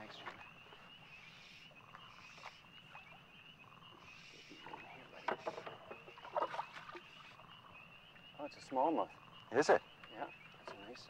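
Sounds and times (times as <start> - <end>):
water splashing against boat: 4.4 - 7.4.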